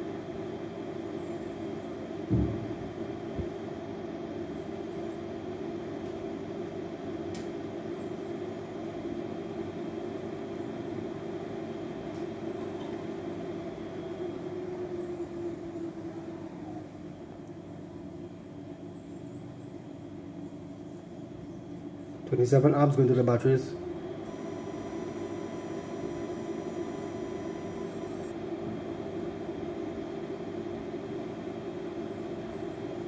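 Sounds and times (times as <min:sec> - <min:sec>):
mechanical hum: 0:00.0 - 0:33.0
low thump: 0:02.3 - 0:02.9.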